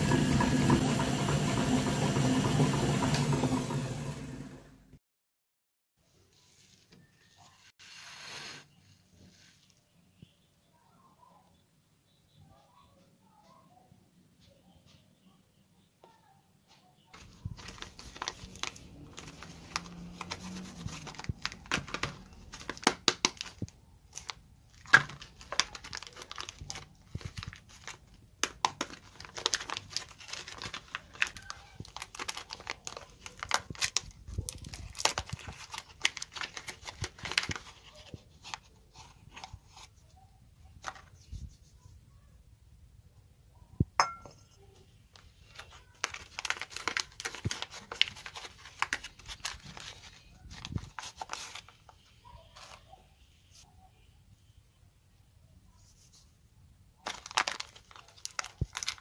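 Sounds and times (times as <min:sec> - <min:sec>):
paper wrappers crinkling: 0:17.1 - 0:40.2, 0:45.1 - 0:53.0, 0:57.0 - 0:59.0.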